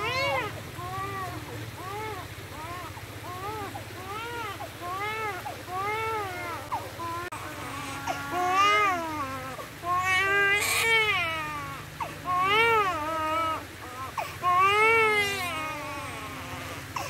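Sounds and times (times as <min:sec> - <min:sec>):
infant crying: 0:00.0 - 0:17.0.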